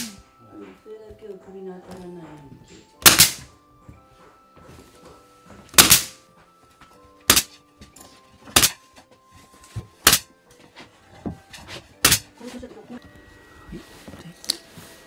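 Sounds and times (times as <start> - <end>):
faint background music: 0.0 - 15.0
nails driven into wooden floorboards: 3.0 - 3.5, 5.7 - 6.2, 7.3 - 7.6, 8.5 - 8.8, 10.0 - 10.3, 12.0 - 12.3.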